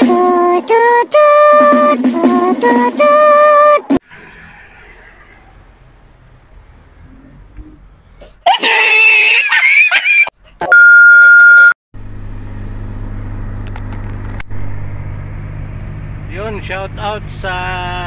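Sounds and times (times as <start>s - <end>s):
electronic beep: 10.7s - 11.8s
car engine hum from cabin: 12.0s - 18.0s.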